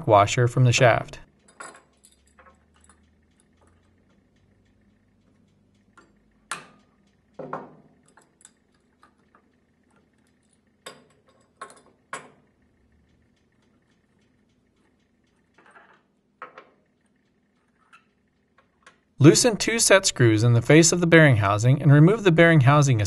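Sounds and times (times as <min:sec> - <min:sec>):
metal tools clinking: 0:01.4 - 0:03.0.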